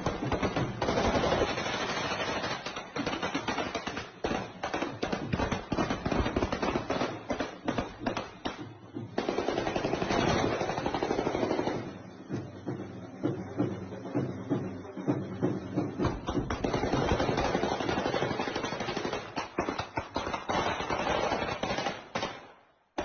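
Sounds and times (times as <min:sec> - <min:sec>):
rifle gunfire bursts: 0:00.0 - 0:08.6, 0:09.2 - 0:11.9.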